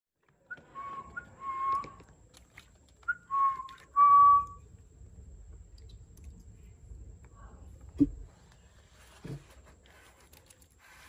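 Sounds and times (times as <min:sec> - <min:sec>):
person whistling two-note calls: 0:00.5 - 0:02.0, 0:03.1 - 0:04.6.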